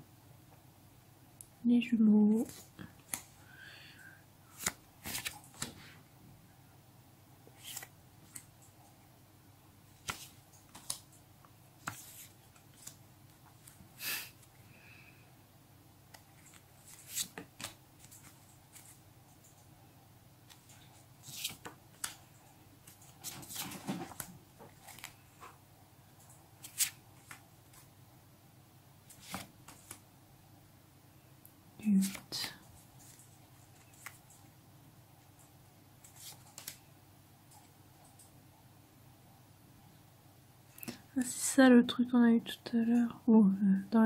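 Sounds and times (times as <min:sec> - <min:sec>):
paper stickers rustling: 0:04.5 - 0:05.8, 0:11.8 - 0:13.8, 0:16.1 - 0:19.5, 0:20.5 - 0:25.4.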